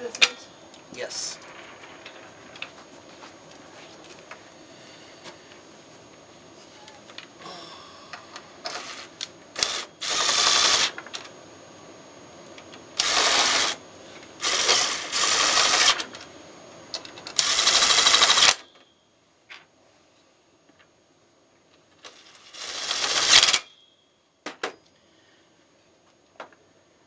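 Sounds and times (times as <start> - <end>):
cordless drill driving screws: 8.7 - 11.0, 13.0 - 13.8, 14.4 - 16.1, 17.4 - 18.6, 22.0 - 23.7.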